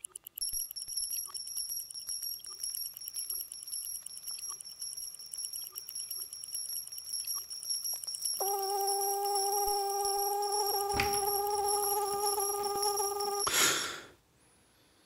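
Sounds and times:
fast even ticking: 0:00.0 - 0:13.5
high-pitched ringing tone: 0:00.4 - 0:13.5.

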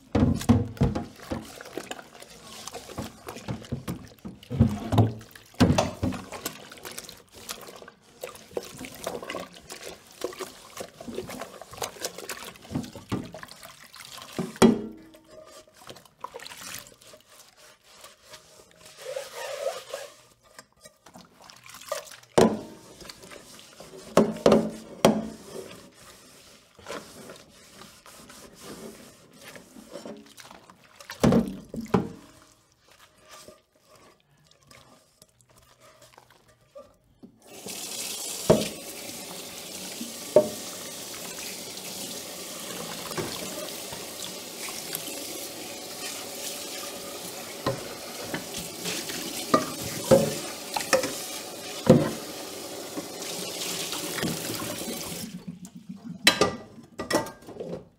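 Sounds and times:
water splashing and trickling: 0:00.0 - 0:20.2, 0:21.0 - 0:24.0, 0:24.8 - 0:56.2
dishes clattering: 0:56.2 - 0:57.9.

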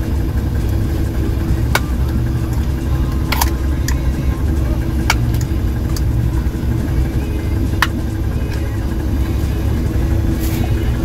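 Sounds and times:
boat engine idling: 0:00.0 - 0:11.0
metallic clicks punching tin: 0:03.0 - 0:04.1.

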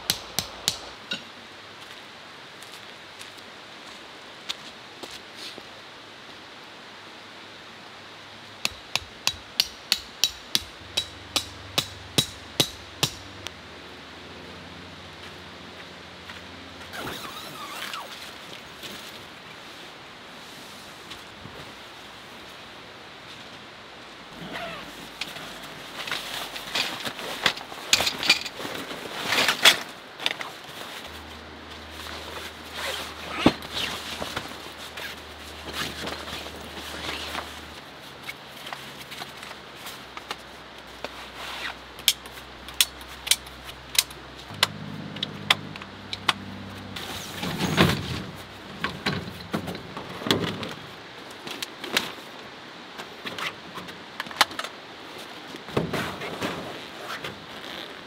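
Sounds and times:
nylon fabric rustling: 0:24.4 - 0:38.2.

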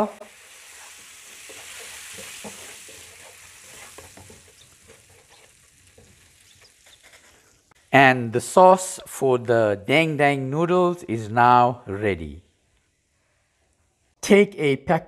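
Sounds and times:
sauce sizzling in a frying pan: 0:00.0 - 0:07.7
wooden spoon scraping and tapping pan: 0:00.9 - 0:07.4.

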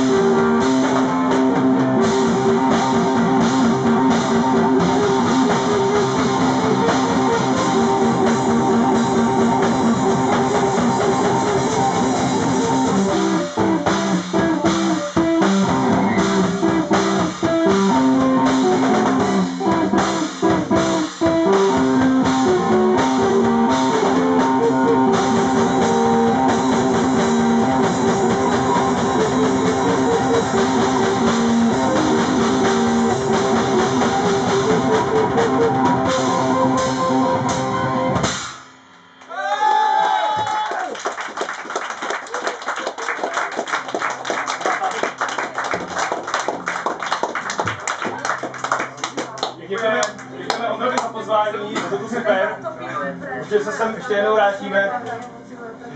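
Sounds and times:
electric guitar riffs: 0:00.0 - 0:38.4
rock band playing: 0:00.0 - 0:39.2, 0:43.5 - 0:52.8
drum kit: 0:00.0 - 0:39.5, 0:42.4 - 0:52.2.

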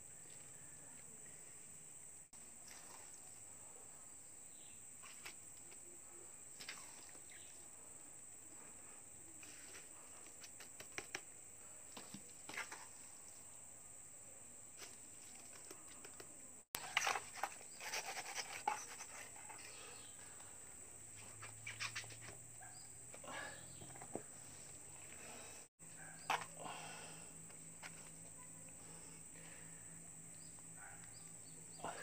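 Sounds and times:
trowel scraping mortar in bucket: 0:16.8 - 0:19.7.

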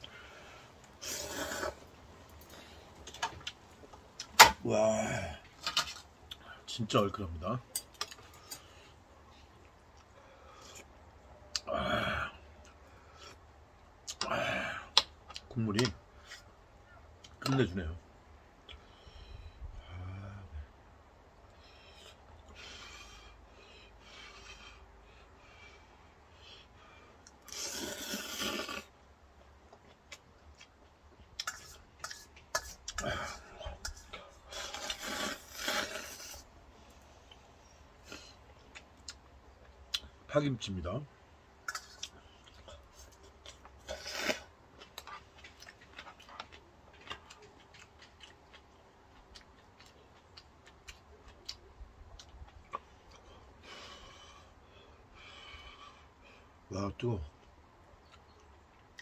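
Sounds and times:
person slurping noodles: 0:01.0 - 0:01.8, 0:27.5 - 0:28.9, 0:34.5 - 0:36.4, 0:43.8 - 0:44.5
chewing food: 0:27.2 - 0:40.2, 0:41.6 - 0:54.5, 0:57.3 - 0:59.0.

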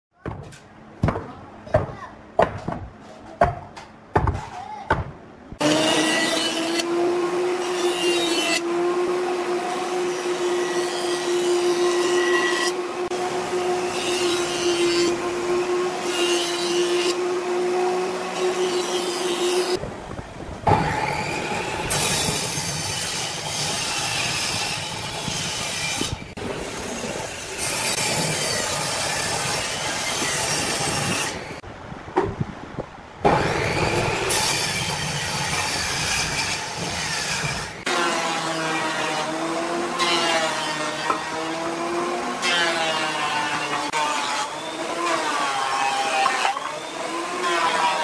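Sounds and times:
sharp knocks: 0:00.2 - 0:05.2
jointer planing a board: 0:05.6 - 0:19.8, 0:33.3 - 0:48.0
table saw running: 0:05.6 - 0:19.8.

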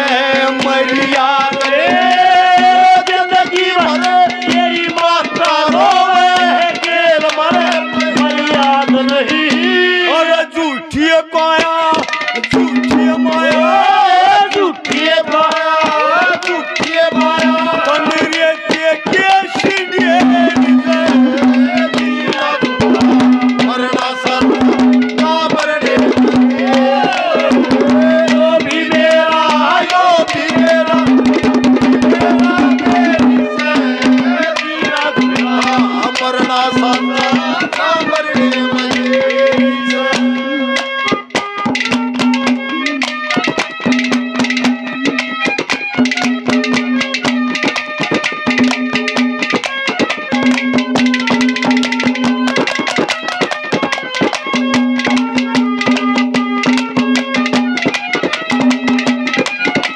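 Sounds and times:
hand drum rhythm: 0:00.0 - 0:59.9
wavering melody: 0:12.2 - 0:59.9.

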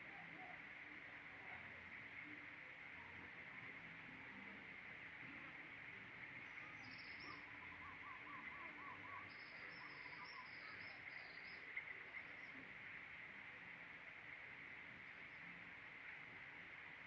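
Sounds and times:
insect hum: 0:00.0 - 0:17.0
bird song: 0:06.2 - 0:12.9.

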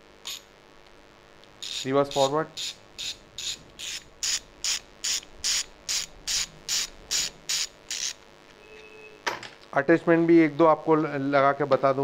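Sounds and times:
socket ratchet clicking: 0:01.6 - 0:08.2.

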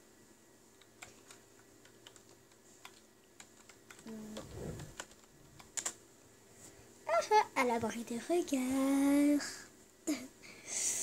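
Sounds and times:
laptop keys clicking: 0:00.8 - 0:04.2, 0:04.8 - 0:06.0.

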